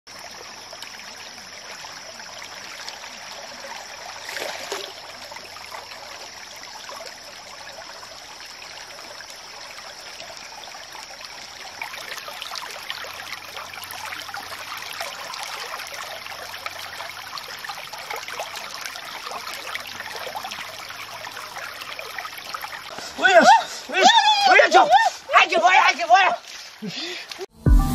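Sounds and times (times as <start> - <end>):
stream trickling: 0.1 - 27.5
fish splashing in water: 4.0 - 6.3.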